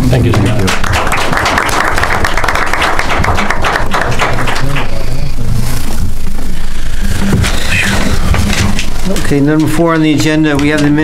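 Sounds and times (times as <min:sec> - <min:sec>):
small audience applauding: 0:00.0 - 0:05.3.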